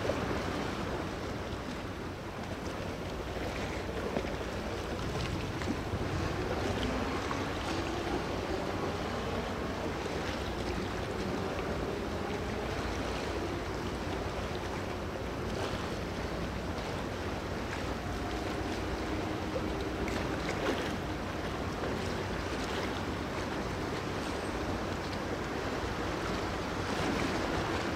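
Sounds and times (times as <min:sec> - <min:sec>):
low hum of ship engines: 0:00.0 - 0:27.9
water noise: 0:00.0 - 0:27.9
wind on microphone: 0:04.8 - 0:12.6.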